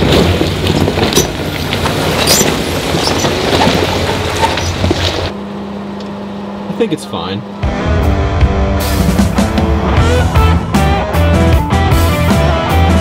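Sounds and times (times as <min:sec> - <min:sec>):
tyres crunching on stones: 0:00.0 - 0:05.4
car engine running low: 0:00.0 - 0:13.0.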